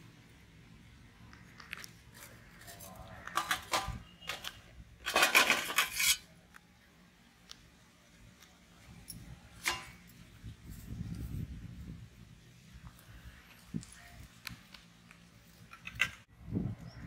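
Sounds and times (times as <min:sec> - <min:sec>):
metal scraping on pot: 0:03.2 - 0:06.3.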